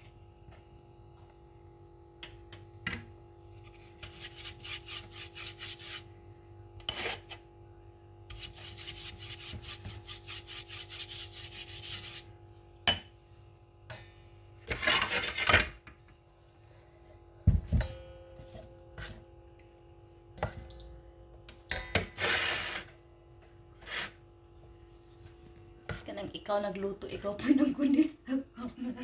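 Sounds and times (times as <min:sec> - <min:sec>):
brush scrubbing a frying pan: 0:04.0 - 0:06.0, 0:08.3 - 0:12.3.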